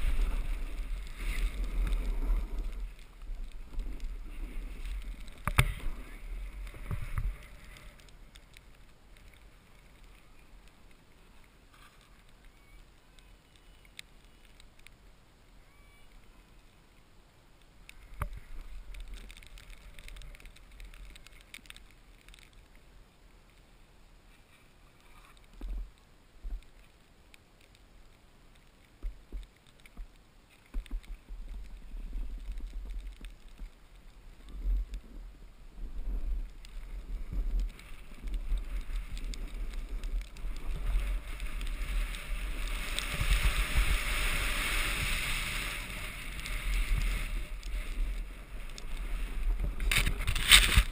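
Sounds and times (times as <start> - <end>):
board edges scraping over snow: 0.0 - 12.4, 35.8 - 50.9
wind buffeting microphone: 34.4 - 50.9.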